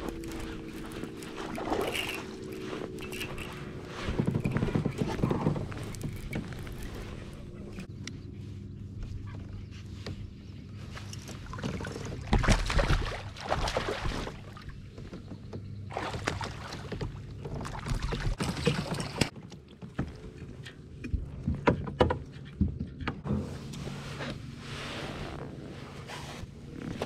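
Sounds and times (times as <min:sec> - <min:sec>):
water sloshing: 0:00.0 - 0:07.9, 0:11.0 - 0:21.6
fish thrashing and splashing: 0:11.6 - 0:14.6.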